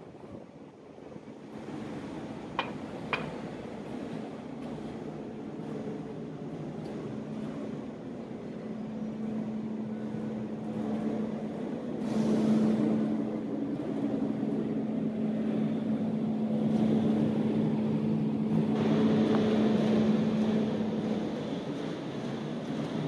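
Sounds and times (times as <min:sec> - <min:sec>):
motor humming steadily: 0:00.1 - 0:23.0.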